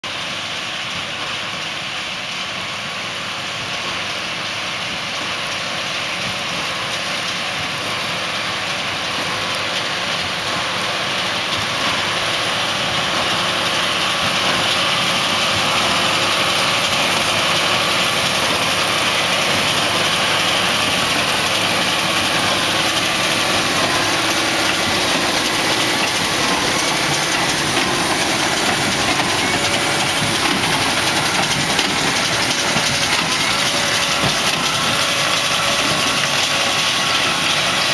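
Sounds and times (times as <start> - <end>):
tractor diesel engine running: 0.0 - 37.9
baler working: 3.4 - 37.9.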